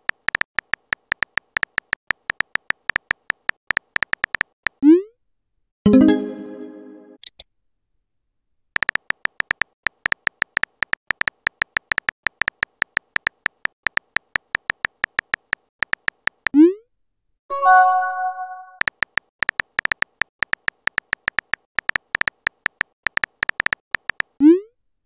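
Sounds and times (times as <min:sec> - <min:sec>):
phone keyboard typing clicks: 0:00.0 - 0:04.8, 0:08.8 - 0:16.6, 0:18.8 - 0:24.4
notification chime: 0:05.9 - 0:07.2, 0:17.5 - 0:18.8.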